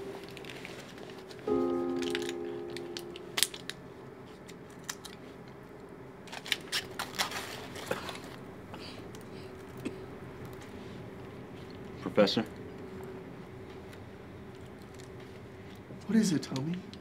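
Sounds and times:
sustained piano chord: 0:00.0 - 0:04.0.

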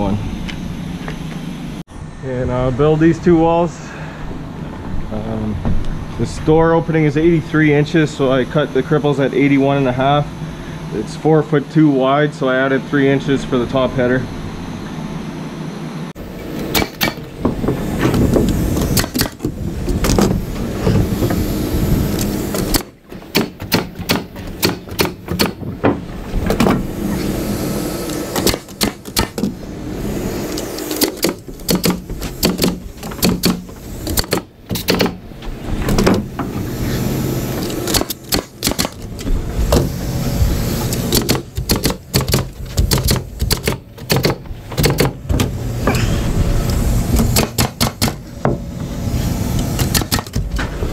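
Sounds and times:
steady low hum: 0:00.0 - 0:50.9
nail gun shots: 0:16.6 - 0:17.3, 0:18.9 - 0:20.3, 0:22.5 - 0:25.7, 0:28.1 - 0:29.5, 0:30.8 - 0:35.2, 0:37.8 - 0:39.1, 0:41.0 - 0:45.5, 0:47.2 - 0:48.2, 0:49.8 - 0:50.5.

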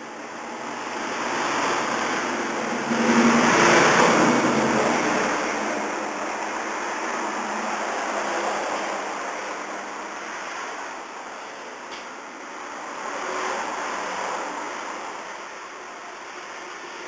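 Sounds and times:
road vehicle passing by: 0:00.1 - 0:17.0.

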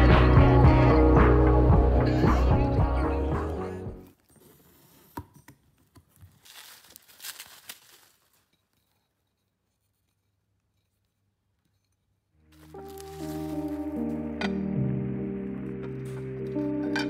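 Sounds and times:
paper rustling and crinkling: 0:05.8 - 0:08.9, 0:12.5 - 0:14.0.

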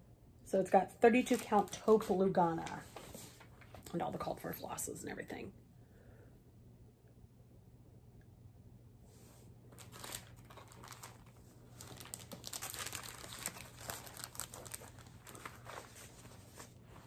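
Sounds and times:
plastic packaging crinkling: 0:01.1 - 0:03.8, 0:09.7 - 0:17.0.

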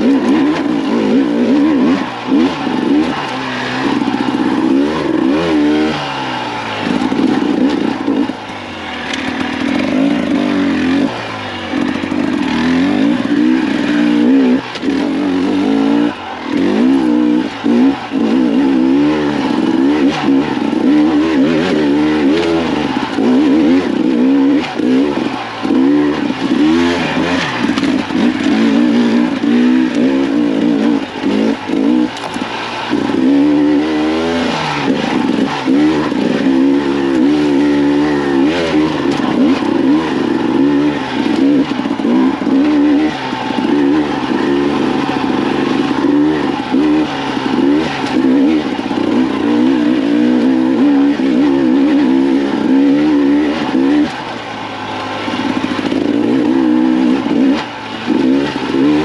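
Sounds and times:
two-stroke motorcycle engine revving: 0:00.0 - 0:59.0.

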